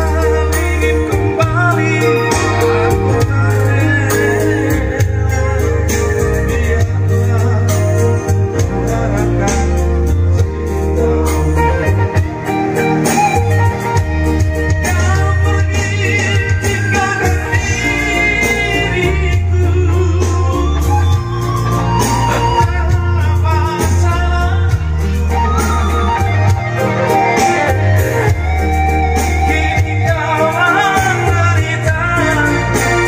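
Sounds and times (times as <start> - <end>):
man singing into a microphone: 0.0 - 13.5, 14.3 - 33.0
backing music with heavy bass: 0.0 - 33.0.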